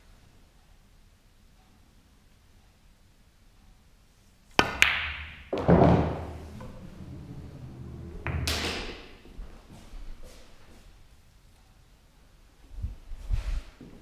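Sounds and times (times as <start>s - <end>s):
pool balls clicking: 4.5s - 9.3s
balls rolling on cloth: 4.8s - 9.4s.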